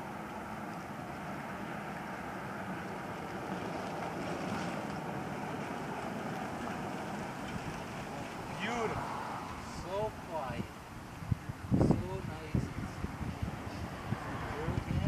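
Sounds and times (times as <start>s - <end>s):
street noise: 0.0s - 15.0s
wind rushing on microphone: 6.7s - 15.0s.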